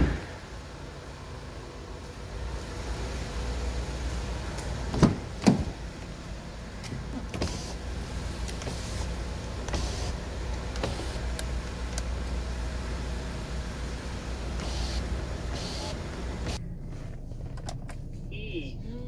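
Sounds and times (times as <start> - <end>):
steady low hum: 0.0 - 19.0
car door handling noises: 4.7 - 5.9, 6.8 - 12.3.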